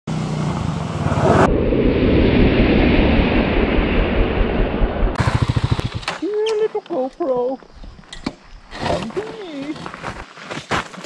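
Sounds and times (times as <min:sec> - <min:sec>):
motorcycle engine running: 0:05.1 - 0:06.2
tyres on gravel: 0:05.2 - 0:11.0.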